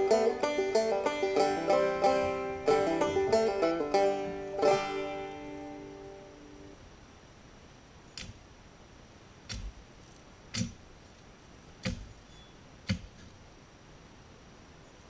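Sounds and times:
distant machete chops: 11.8 - 12.1.

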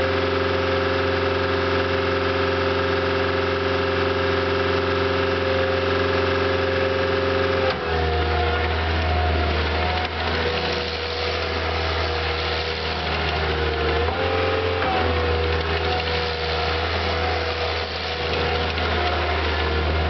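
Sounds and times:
diesel engine running: 0.0 - 20.0
steady whine: 7.6 - 20.0.

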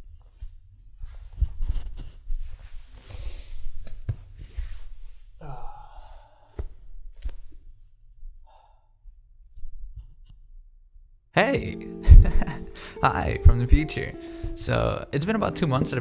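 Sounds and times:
clothing rustling on microphone: 0.0 - 5.4
man breathing and sighing: 5.4 - 7.4, 8.4 - 9.0, 11.8 - 13.1, 14.1 - 14.6.

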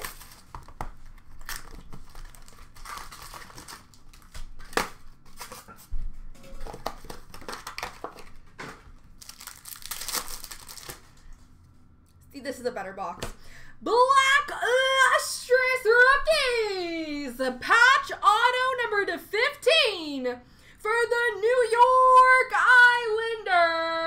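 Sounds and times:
wrappers crinkling and tearing: 0.0 - 5.8, 6.6 - 8.4, 9.1 - 11.4.

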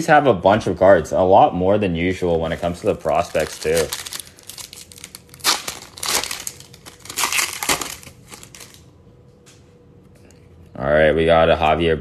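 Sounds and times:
foil wrapper crinkling: 2.4 - 8.8.

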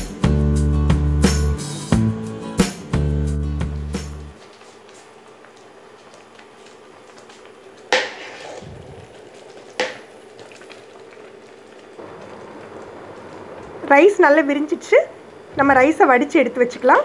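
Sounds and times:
water bubbling in a pot: 4.4 - 14.6.

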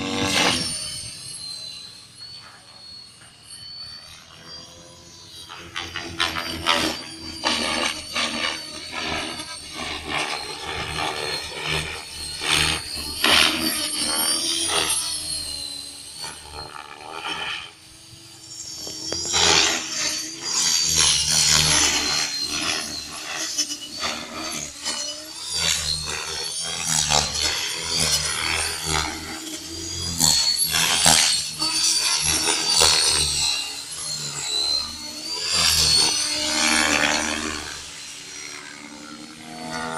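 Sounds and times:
rc helicopter rotor buzzing: 0.0 - 39.9.

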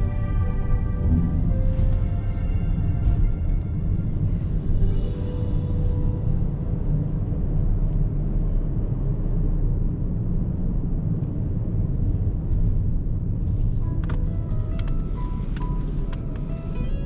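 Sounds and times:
faint music: 0.0 - 9.0, 13.4 - 17.0
car engine and tyres rumbling: 0.0 - 17.0.

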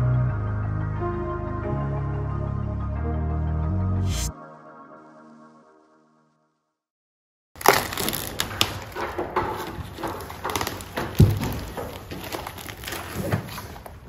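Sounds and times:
plastic film crinkling: 7.6 - 14.0.

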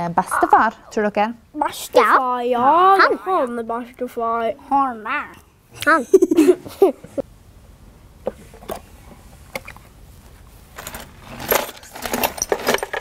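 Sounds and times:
metal chain links clinking: 10.8 - 13.0.

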